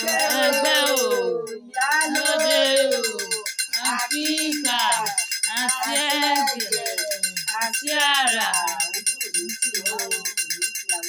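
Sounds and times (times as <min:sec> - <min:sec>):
person singing a chant-like song: 0:00.0 - 0:09.1
shaker rhythm: 0:00.0 - 0:11.0.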